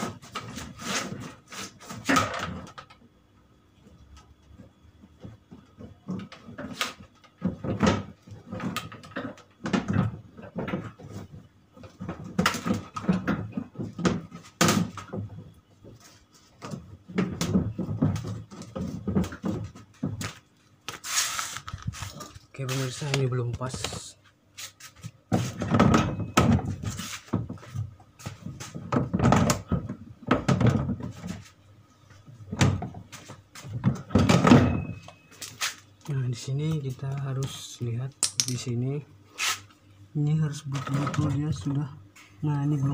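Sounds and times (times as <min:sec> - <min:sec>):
plastic cabinet knocking and scraping: 0:07.4 - 0:20.4, 0:25.3 - 0:31.5, 0:32.4 - 0:34.9.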